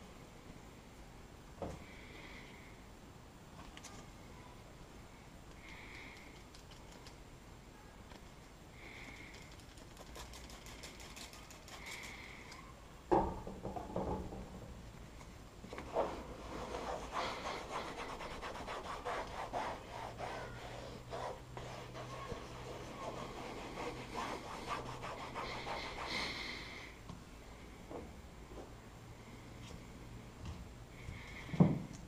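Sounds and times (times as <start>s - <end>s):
towel rubbing on plastic: 15.8s - 26.5s.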